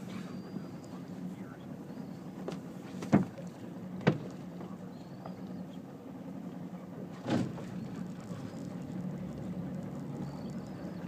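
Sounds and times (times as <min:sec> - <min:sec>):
low steady hum: 0:00.0 - 0:11.0
sharp knocks on boat: 0:02.4 - 0:05.4, 0:07.1 - 0:08.5.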